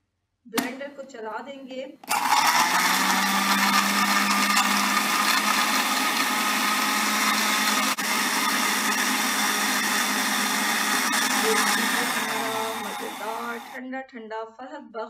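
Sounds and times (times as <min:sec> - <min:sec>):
blender motor running: 0:02.1 - 0:13.8.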